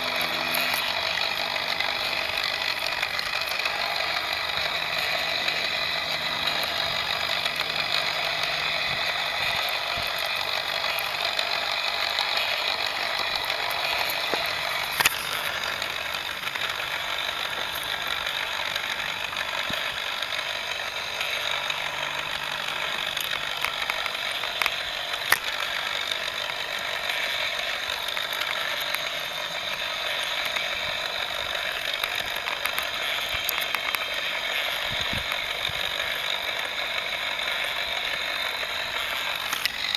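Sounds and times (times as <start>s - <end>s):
toy motor and gears whirring: 0.0s - 39.9s
sharp click: 13.9s - 15.5s.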